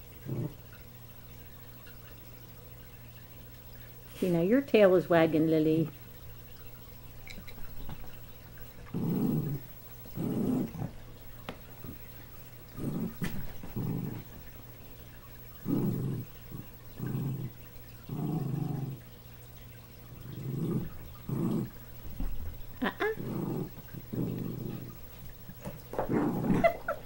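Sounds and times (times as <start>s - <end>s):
small dogs growling: 0.0s - 0.8s, 7.3s - 14.6s, 15.4s - 19.2s, 19.9s - 27.0s.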